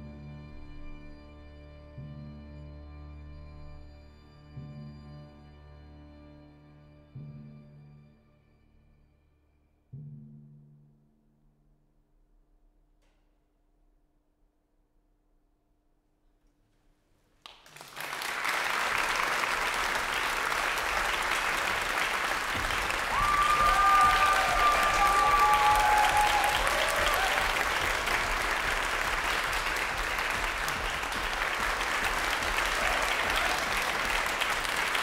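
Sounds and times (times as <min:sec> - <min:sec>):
audience applauding: 0:17.4 - 0:35.0
audience calling out: 0:20.7 - 0:34.6.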